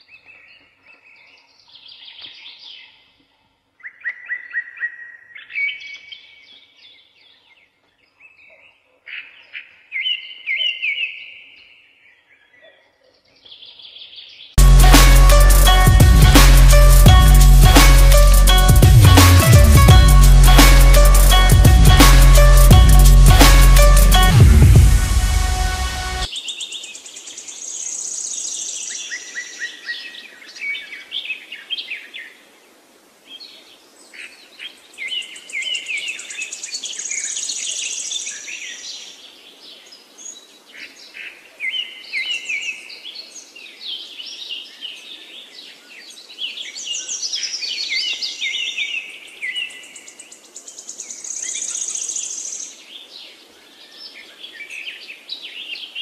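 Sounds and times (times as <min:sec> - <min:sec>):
high buzzy bird note: 0:14.6 - 0:26.3.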